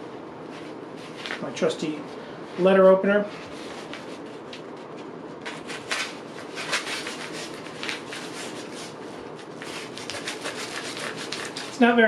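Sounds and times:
envelope paper tearing: 5.5 - 8.9, 9.6 - 11.8.

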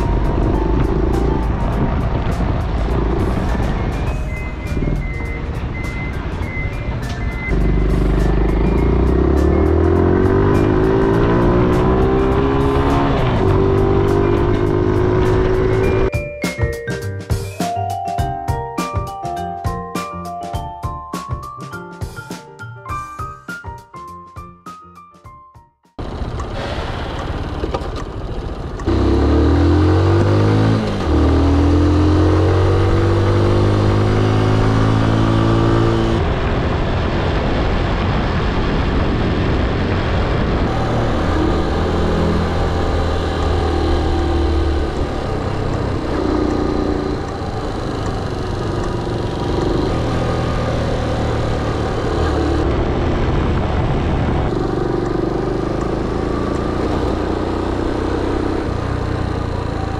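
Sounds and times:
small motorcycle engine revving: 7.4 - 16.1, 26.0 - 37.7, 39.2 - 59.9.

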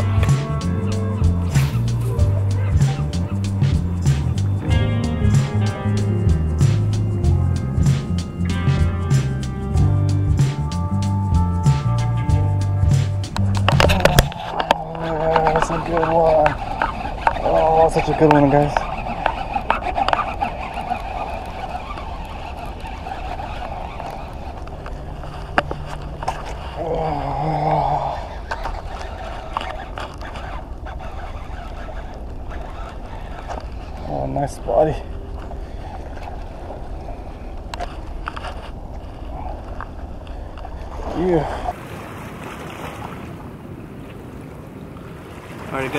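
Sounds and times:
fishing reel gears whirring: 0.0 - 41.8
wind rumbling on microphone: 0.0 - 45.9
sharp reel clicks: 13.2 - 26.6, 28.0 - 36.8
water lapping against rocks: 13.4 - 45.9.

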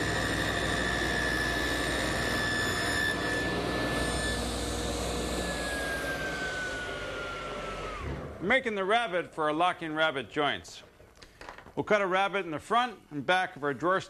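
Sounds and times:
motor winding down: 0.0 - 8.4
power tool whining: 0.0 - 8.4.

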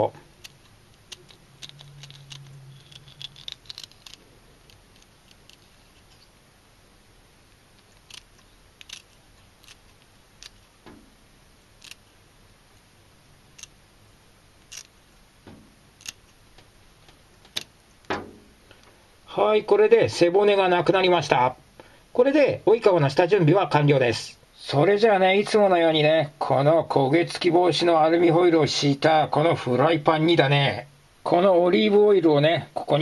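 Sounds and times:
scissors snipping: 0.4 - 5.7, 7.8 - 10.7.

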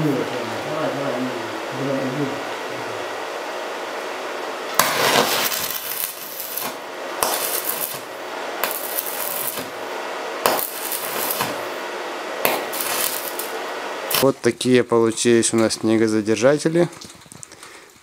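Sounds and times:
welding arc crackling: 4.6 - 14.4.

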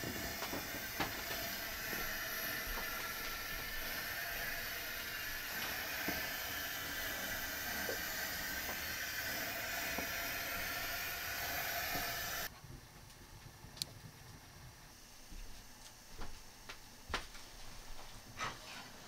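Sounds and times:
burgers sizzling in a pan: 0.0 - 12.5.

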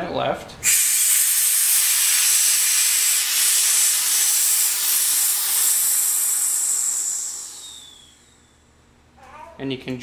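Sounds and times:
compressed air hissing: 0.6 - 8.6.

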